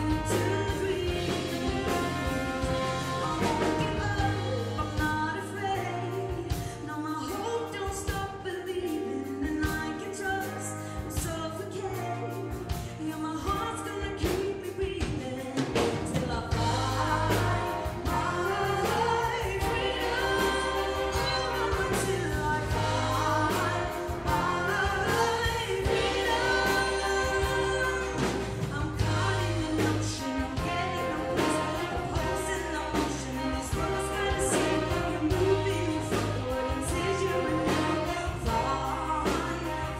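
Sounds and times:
big band playing: 0.0 - 39.9
woman singing lead: 0.0 - 39.9
backing choir: 16.4 - 39.9.

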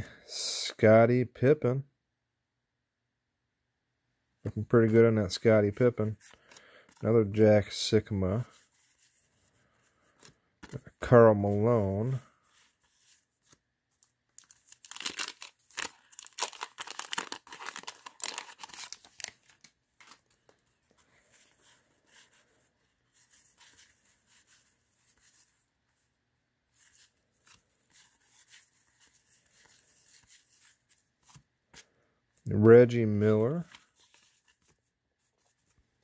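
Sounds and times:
cards rustling: 4.5 - 26.1, 26.7 - 36.0
card pack tearing open: 14.4 - 20.3.

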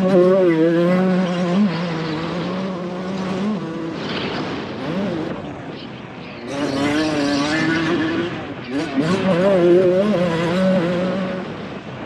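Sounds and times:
motorcycle engine revving: 0.0 - 12.0
wind rushing over microphone: 0.0 - 12.0.

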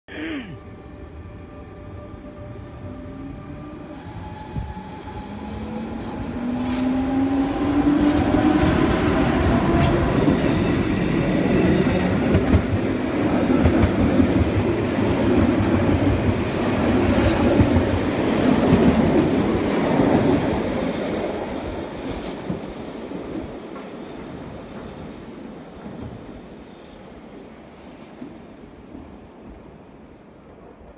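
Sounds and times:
locomotive whine: 0.7 - 13.0.

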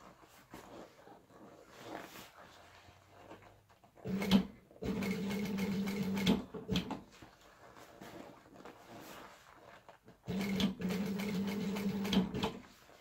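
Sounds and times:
sewing machine stitching: 4.0 - 7.0, 10.2 - 12.7.

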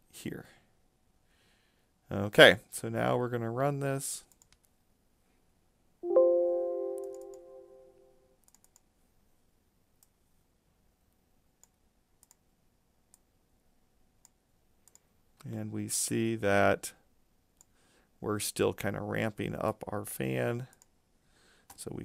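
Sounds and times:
faint mouse clicks: 4.3 - 4.8, 7.0 - 7.4, 8.4 - 8.9, 10.0 - 10.2, 11.6 - 12.5, 13.1 - 13.3, 14.2 - 15.6, 17.6 - 17.8, 20.6 - 21.0
electronic notification chime: 6.0 - 8.0.

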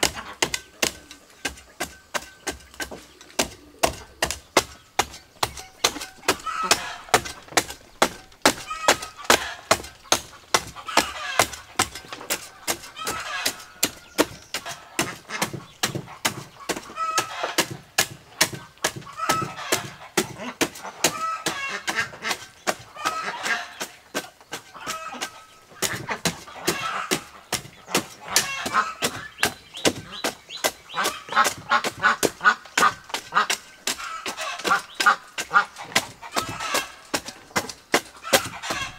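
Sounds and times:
hoe chopping into soil: 0.0 - 38.9
fowl honking: 5.5 - 17.7, 19.0 - 23.9, 24.6 - 29.4, 30.9 - 37.4, 38.2 - 38.9.

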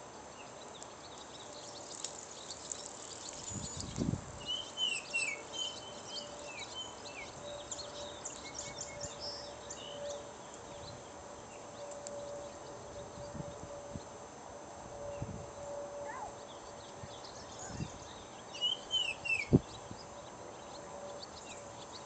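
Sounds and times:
small birds chirping: 0.4 - 14.2, 16.0 - 22.0
oriole whistling song: 17.2 - 19.6.

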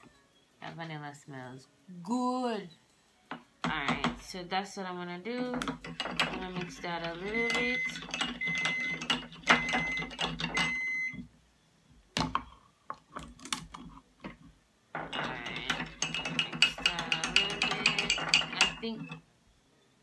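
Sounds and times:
spoon clinking and scraping dish: 5.8 - 10.8, 15.0 - 19.2.

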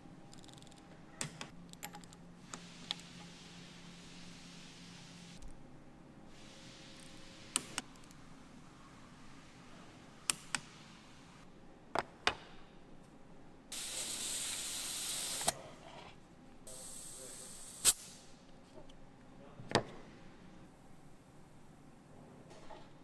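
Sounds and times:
compressed air hissing: 13.7 - 15.5, 16.7 - 18.2.

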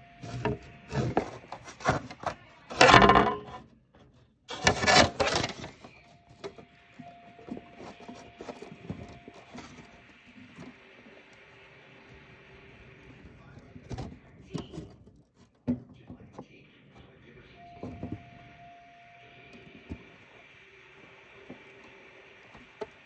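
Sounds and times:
dishes and cutlery clattering: 2.7 - 3.6.

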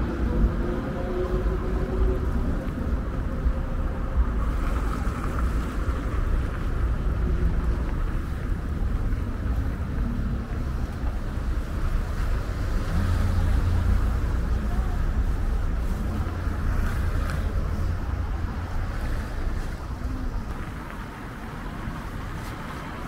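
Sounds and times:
street traffic noise: 0.0 - 23.0
wind rumble on microphone: 0.0 - 23.0.

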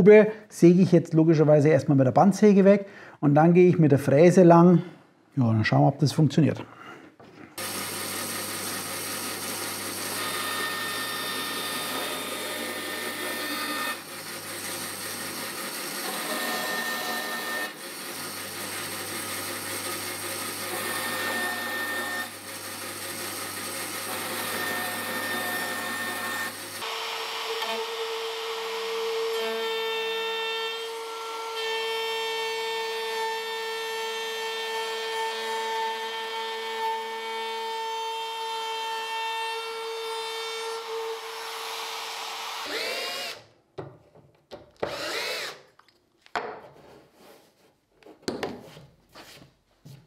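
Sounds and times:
router high whine: 7.6 - 14.0, 16.0 - 17.8, 24.1 - 29.5
band saw humming: 23.1 - 29.6.

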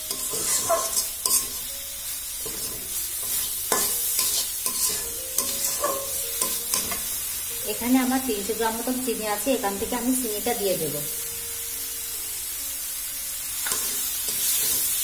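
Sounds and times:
food sizzling: 0.0 - 15.0
metal spatula scraping pan: 0.1 - 1.7, 2.4 - 7.1.

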